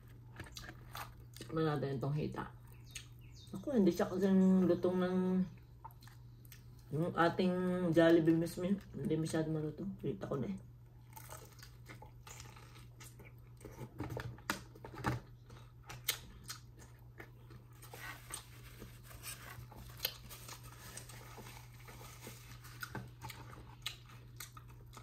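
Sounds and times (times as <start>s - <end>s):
person chewing food: 0.0s - 1.5s, 2.6s - 3.5s, 5.6s - 6.9s, 10.9s - 14.0s, 15.3s - 25.0s
steady low hum: 0.0s - 25.0s.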